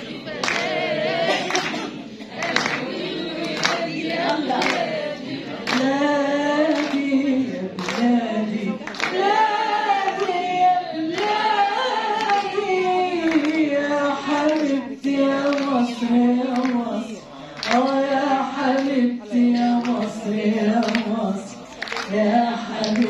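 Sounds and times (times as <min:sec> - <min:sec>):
woman singing opera unaccompanied: 0:05.7 - 0:23.0.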